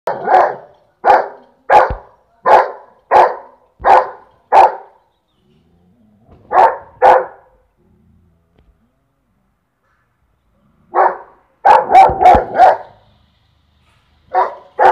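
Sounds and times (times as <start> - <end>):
dog barking: 0.1 - 5.0, 6.5 - 7.6, 10.9 - 13.0, 14.3 - 14.9.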